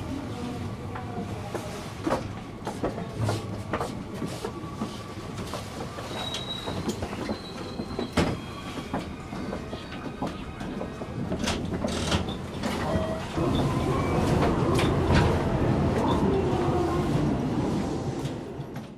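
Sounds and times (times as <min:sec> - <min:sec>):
train wheels clacking over joints: 0:05.5 - 0:13.3
high brake squeal: 0:06.1 - 0:10.0.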